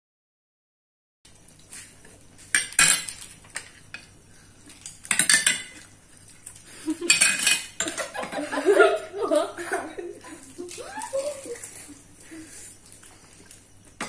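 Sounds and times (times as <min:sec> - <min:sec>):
spoons clattering against bowls: 0:02.5 - 0:04.1, 0:04.7 - 0:05.9, 0:07.0 - 0:08.5.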